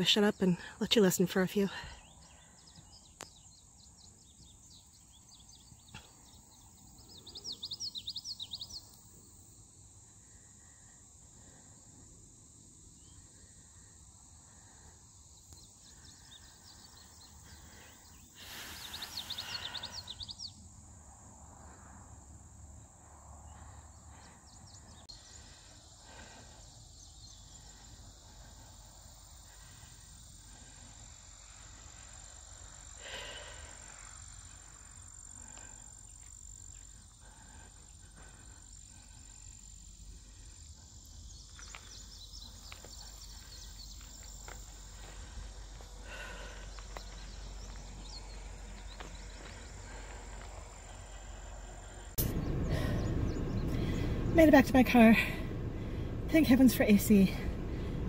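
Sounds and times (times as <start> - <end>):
high-pitched insect chorus: 1.9 - 57.9
rapid bird chirping: 2.0 - 9.0, 15.6 - 20.6.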